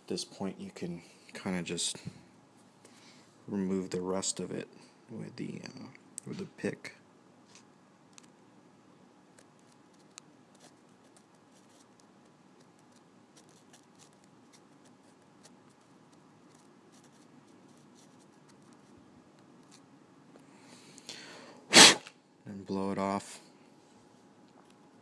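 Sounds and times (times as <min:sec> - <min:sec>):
breath blown at coil: 0:21.7 - 0:22.1.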